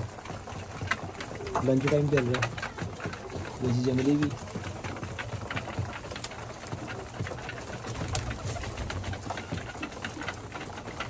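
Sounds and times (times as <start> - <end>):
beaks pecking grain: 0.0 - 11.0
pigeons cooing: 0.0 - 11.0
wing flap: 6.8 - 11.0.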